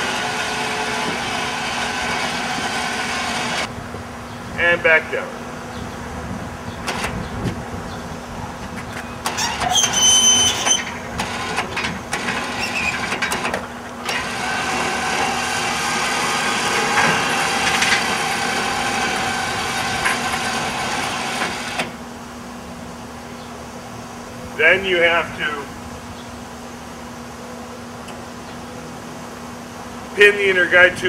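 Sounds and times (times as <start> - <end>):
winch motor running: 0.0 - 3.7, 9.2 - 22.1
high squeal: 9.3 - 11.0, 12.5 - 13.1.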